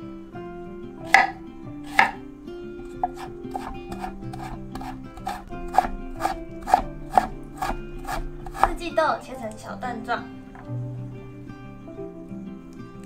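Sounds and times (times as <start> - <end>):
knife chopping on wooden board: 1.1 - 2.2, 3.0 - 8.8.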